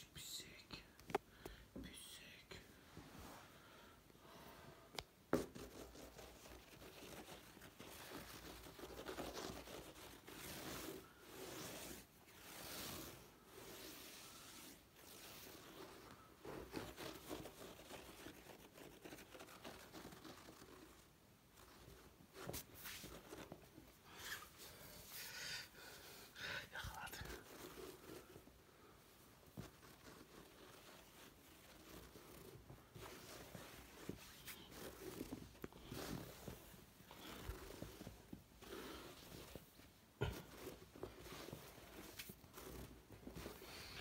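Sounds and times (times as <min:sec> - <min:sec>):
kittens rustling on blankets: 0:26.7 - 0:44.0.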